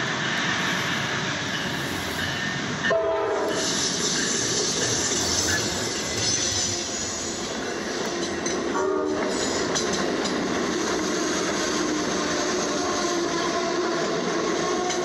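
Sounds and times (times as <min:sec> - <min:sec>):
train rolling past: 0:00.0 - 0:15.0
train horn chord: 0:02.9 - 0:03.6, 0:08.7 - 0:09.3.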